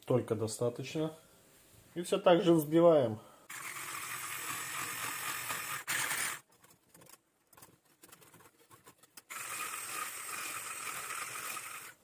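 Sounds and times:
electric hand mixer whisking: 0:03.5 - 0:06.4, 0:09.3 - 0:12.0.

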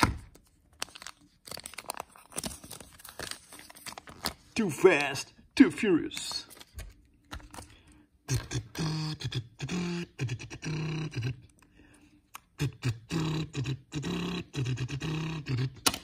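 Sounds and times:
man imitating car engine: 0:08.3 - 0:11.5, 0:12.5 - 0:15.9.

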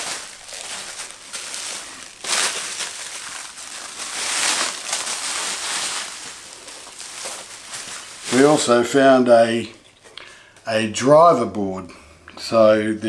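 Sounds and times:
bubble wrap crinkling: 0:00.0 - 0:09.6.

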